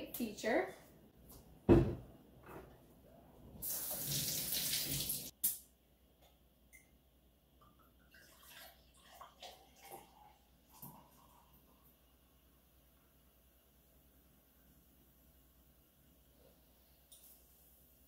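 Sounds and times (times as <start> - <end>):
water running from tap: 3.6 - 5.3, 8.1 - 11.5.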